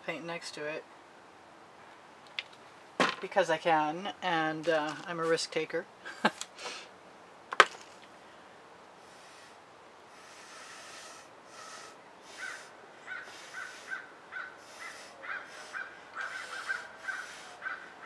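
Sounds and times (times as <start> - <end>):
breathy hissing noise: 6.4 - 7.0, 8.2 - 18.0
crow cawing: 12.3 - 18.0.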